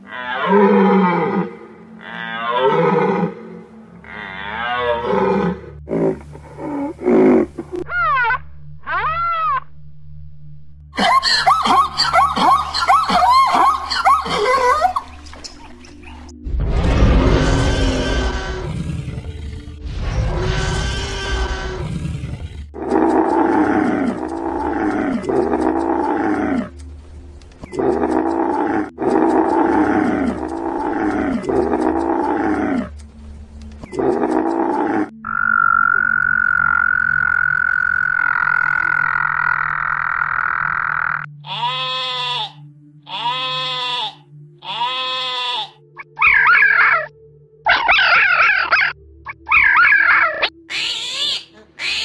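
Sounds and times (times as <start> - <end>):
croaking calls: 0.0 - 9.7, 11.2 - 16.3, 33.6 - 47.1, 47.7 - 52.0
frog trilling: 33.9 - 47.1, 47.7 - 52.0.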